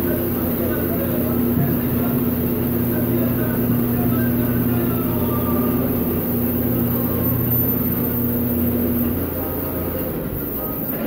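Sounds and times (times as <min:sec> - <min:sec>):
steady machine hum: 0:00.0 - 0:11.0.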